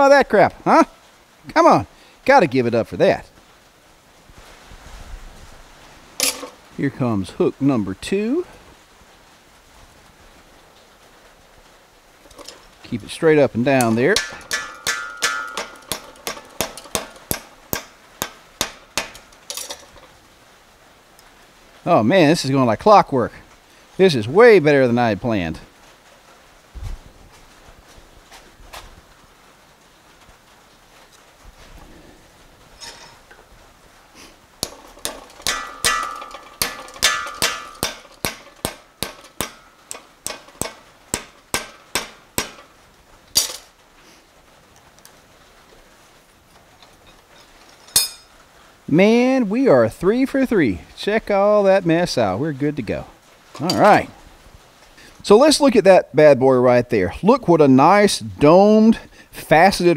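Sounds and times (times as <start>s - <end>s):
hammer striking hot metal: 13.8s - 20.1s, 34.6s - 42.8s, 48.0s - 48.3s.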